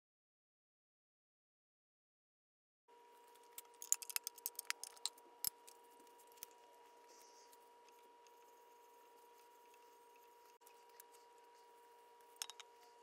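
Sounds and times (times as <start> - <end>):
steady electrical hum: 2.9 - 13.0
small objects clicking on workbench: 3.5 - 5.8, 12.3 - 12.7.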